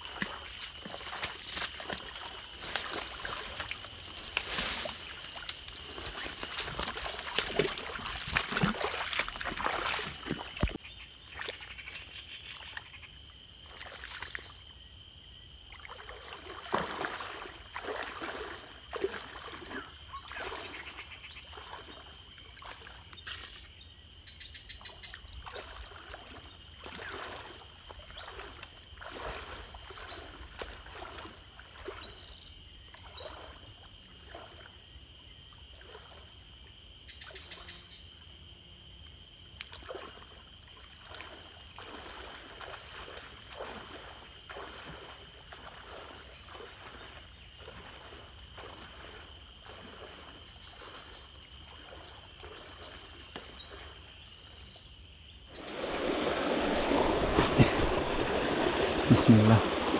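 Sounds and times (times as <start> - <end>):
footsteps wading through water: 0.0 - 12.7, 13.6 - 14.6, 15.7 - 23.7, 25.3 - 32.2, 32.9 - 34.7, 39.6 - 54.0, 55.5 - 59.9
insect chorus: 0.0 - 59.9
branches and leaves rustling: 0.6 - 10.8, 55.5 - 59.9.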